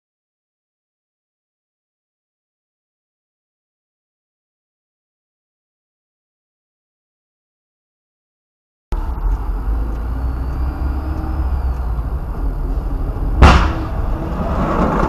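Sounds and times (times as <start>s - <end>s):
car engine and tyres rumbling: 8.9s - 15.0s
loud bang: 13.4s - 15.0s.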